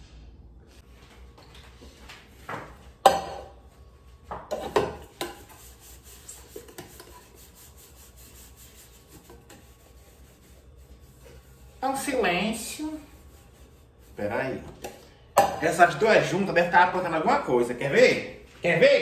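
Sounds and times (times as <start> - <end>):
cloth rubbing on metal: 5.5 - 14.6.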